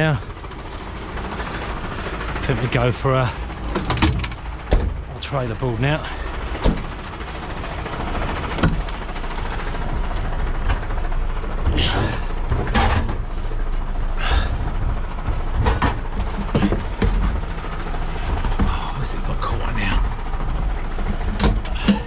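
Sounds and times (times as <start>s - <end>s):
truck engine idling: 0.0s - 22.0s
sharp knocks and clatters: 3.6s - 5.0s, 14.8s - 17.5s.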